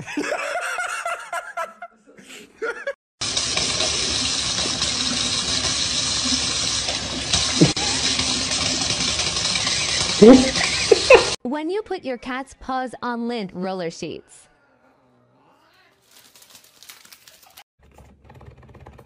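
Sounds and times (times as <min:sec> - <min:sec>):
faucet water pouring into sink: 0:03.2 - 0:11.4
person speaking: 0:10.2 - 0:11.3.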